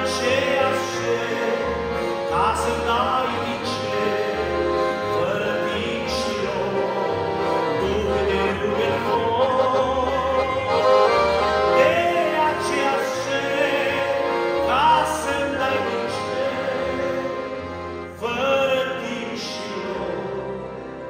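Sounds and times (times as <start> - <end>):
man singing a hymn: 0.0 - 21.0
piano accordion: 0.0 - 21.0.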